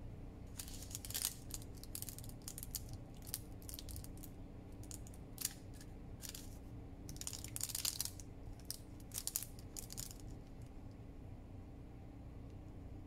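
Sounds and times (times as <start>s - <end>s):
low steady hum: 0.0s - 13.0s
paper crinkling and crackling: 0.5s - 10.7s.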